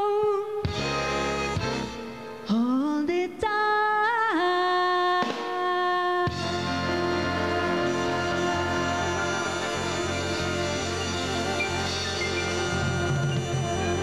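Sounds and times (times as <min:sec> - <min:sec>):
woman singing jazz ballad: 0:00.0 - 0:00.8, 0:02.4 - 0:14.0
big band sustained chord: 0:06.3 - 0:14.0.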